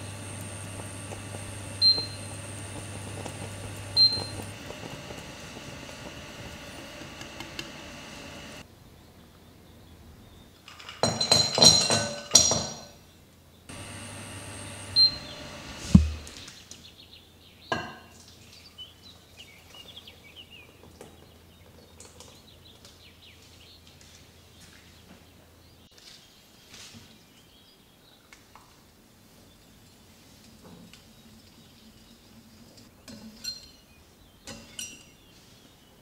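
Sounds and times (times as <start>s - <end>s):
kitchen utensils and dishes clinking: 10.7s - 13.0s, 33.1s - 33.8s, 34.5s - 35.2s.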